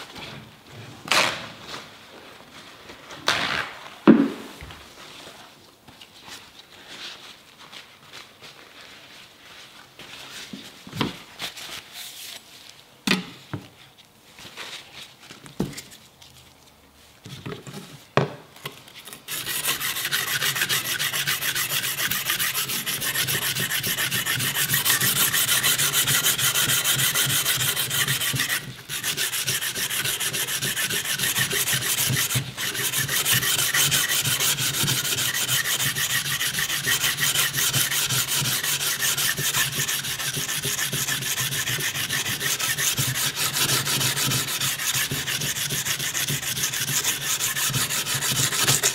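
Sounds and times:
sandpaper rubbing on steel blade: 0:19.3 - 0:48.9.

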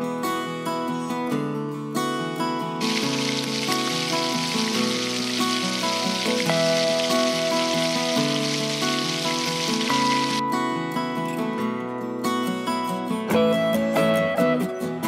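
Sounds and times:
acoustic guitar music: 0:00.0 - 0:15.0
battered food sizzling in oil: 0:02.8 - 0:10.4.

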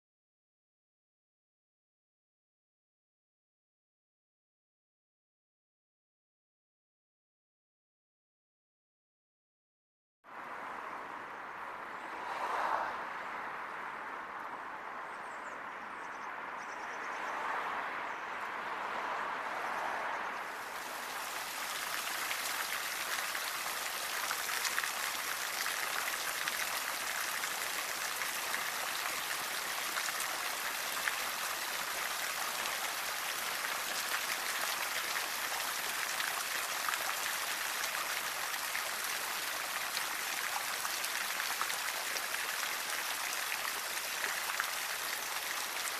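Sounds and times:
open-air background: 0:10.2 - 0:45.9
fountain water splashing into basin: 0:20.4 - 0:45.9.

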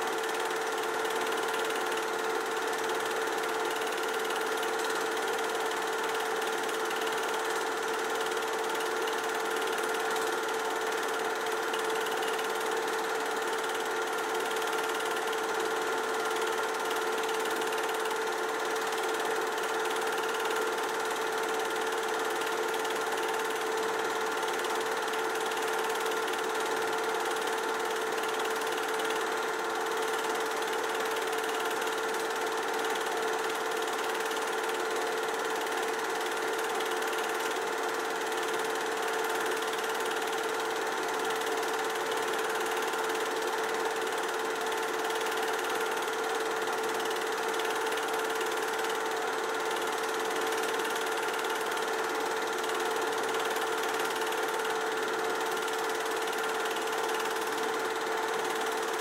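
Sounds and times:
film projector whirring: 0:00.0 - 0:59.0.

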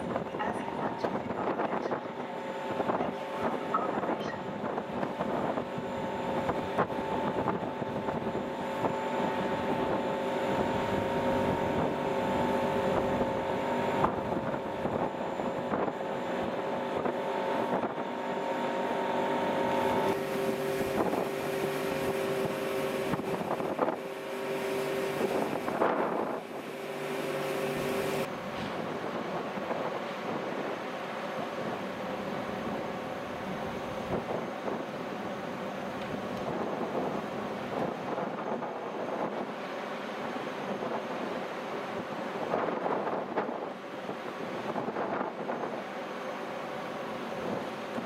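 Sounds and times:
wind on microphone: 0:00.0 - 0:18.2, 0:19.9 - 0:24.1, 0:24.9 - 0:26.7
ferry machinery hum: 0:00.0 - 0:48.0.

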